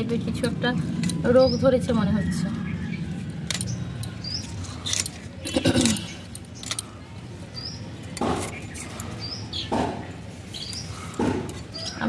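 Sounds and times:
bangles clinking: 3.4s - 7.0s
stems snapping and rustling: 3.4s - 7.0s.

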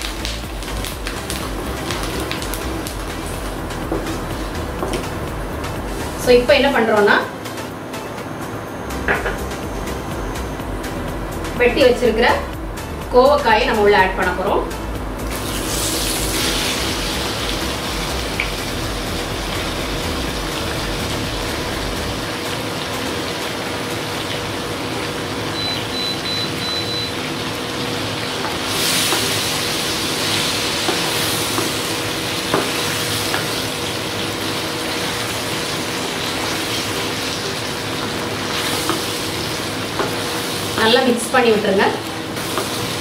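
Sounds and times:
vegetables sizzling in hot oil: 0.0s - 5.2s, 15.2s - 43.0s.

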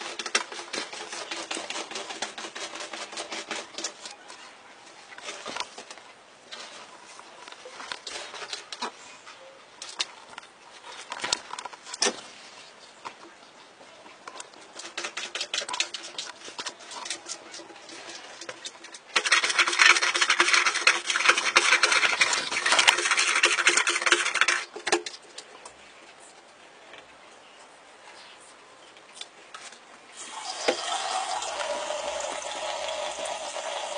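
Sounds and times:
cat scratching at paper: 0.0s - 4.2s, 14.6s - 24.7s
toilet paper rustling: 0.0s - 4.4s, 5.2s - 9.0s, 14.6s - 25.4s.

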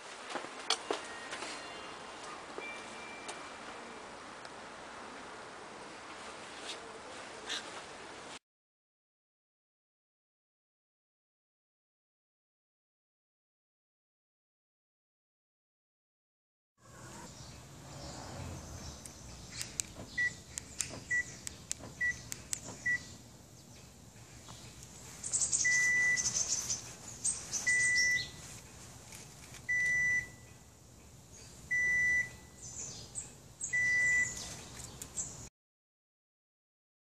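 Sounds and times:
single-pitch alarm beeps: 2.6s - 3.5s, 25.6s - 26.3s, 27.7s - 28.4s, 29.7s - 30.5s, 31.7s - 32.5s, 33.8s - 34.4s
car alarm buzzer chirps: 25.6s - 26.3s, 27.7s - 28.4s, 31.7s - 32.5s, 33.8s - 34.4s.

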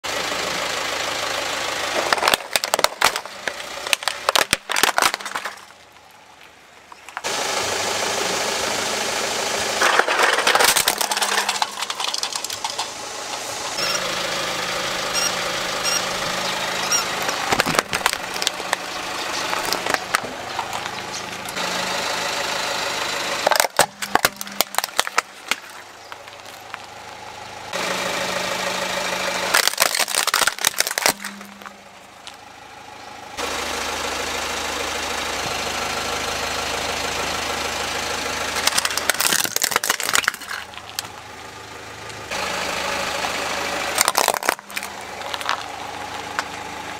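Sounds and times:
car engine idling: 0.0s - 46.9s
plastic toys cracking and snapping: 2.0s - 7.3s, 9.8s - 12.9s, 17.4s - 18.9s, 19.5s - 21.0s, 23.4s - 26.8s, 29.5s - 31.7s, 38.6s - 41.2s, 44.0s - 45.7s.

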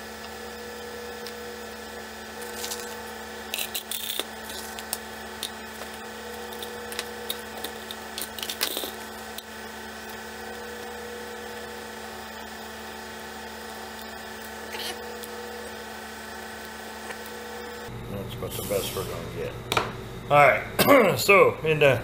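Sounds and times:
steady hum: 0.0s - 22.0s.

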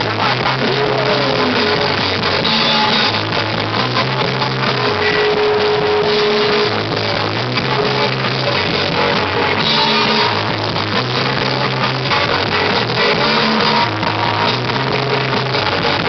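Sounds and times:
drum kit: 0.0s - 16.0s
electric guitars: 0.0s - 16.0s.

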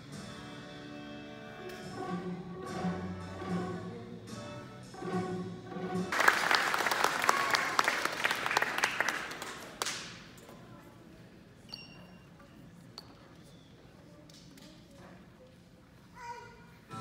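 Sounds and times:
string ensemble with violins: 0.3s - 6.2s
audience clapping: 6.1s - 10.4s.

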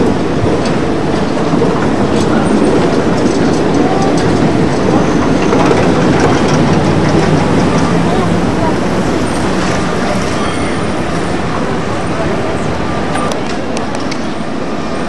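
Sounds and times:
tram wheels rumbling on rails: 0.0s - 15.0s.

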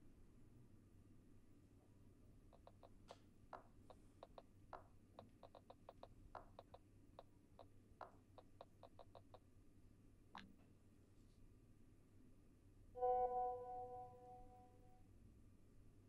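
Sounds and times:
faint low hum: 0.0s - 16.0s
smartphone keyboard taps: 2.5s - 9.4s.

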